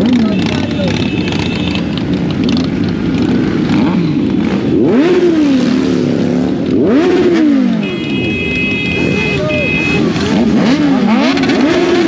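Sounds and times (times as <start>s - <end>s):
motorcycle engine revving: 0.0s - 12.0s
motorcycles idling: 0.0s - 12.0s.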